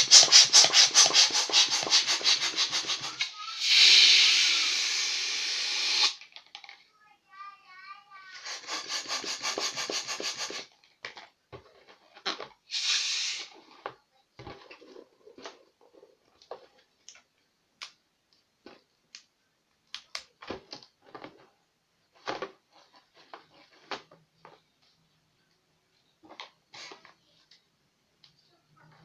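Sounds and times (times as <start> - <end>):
air rushing into balloon: 0.0 - 6.2, 8.4 - 10.7, 12.7 - 13.6
short hiss: 0.0 - 6.2, 12.7 - 13.7.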